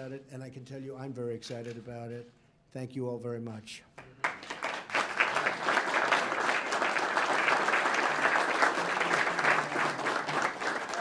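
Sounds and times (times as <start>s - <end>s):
people applauding: 4.0s - 11.0s.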